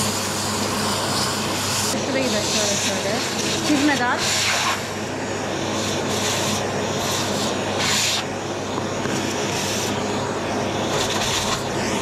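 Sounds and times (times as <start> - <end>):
rushing hiss of nozzle on mesh: 0.0 - 12.0
vacuum cleaner running: 0.0 - 12.0.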